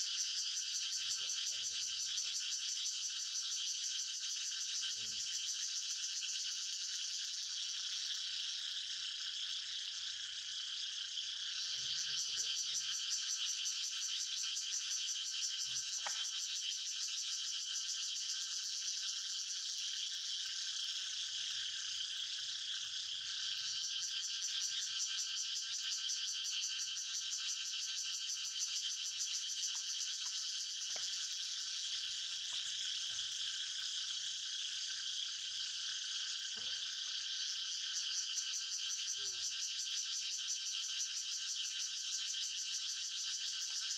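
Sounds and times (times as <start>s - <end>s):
chorus of calling insects: 0.0s - 43.9s.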